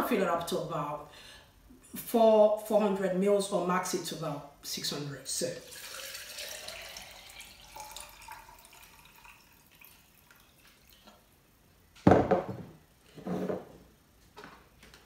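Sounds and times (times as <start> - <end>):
water pouring into blender cup: 5.6 - 11.2
blender cup set down knock: 12.0 - 12.7
glass jug knocking on worktop: 12.0 - 12.8.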